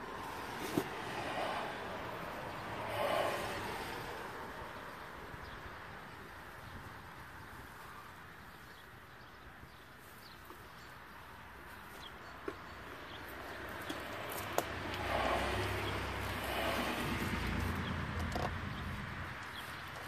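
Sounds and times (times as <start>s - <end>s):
wheelchair rolling on grass: 0.0s - 20.0s
wheelchair clicks: 18.0s - 18.9s.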